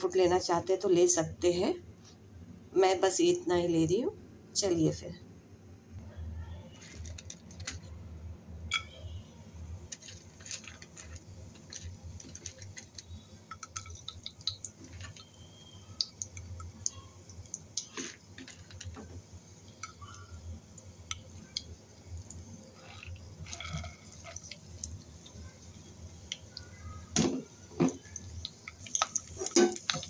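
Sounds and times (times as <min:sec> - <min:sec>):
spices sizzling in hot fat: 0:09.8 - 0:30.0.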